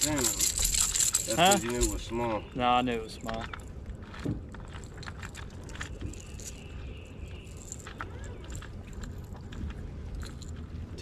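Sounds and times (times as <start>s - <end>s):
fishing lure clicks and rattles: 0.0s - 2.0s.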